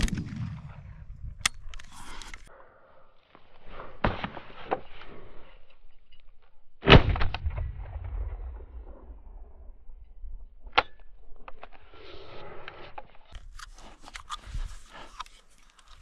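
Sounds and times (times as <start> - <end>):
shotgun shot: 6.8 - 9.4.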